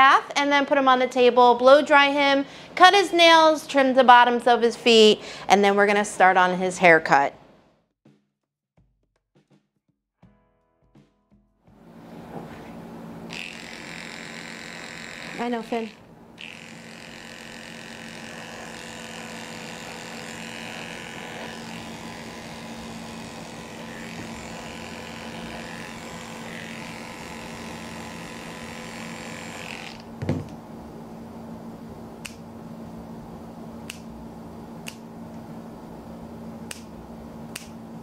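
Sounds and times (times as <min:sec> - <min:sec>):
electric clippers running: 0:11.8 - 0:30.6
thump: 0:30.2 - 0:30.5
nail clippers clicking: 0:32.2 - 0:32.4, 0:33.8 - 0:34.1, 0:34.8 - 0:35.0, 0:36.7 - 0:36.9, 0:37.5 - 0:37.8.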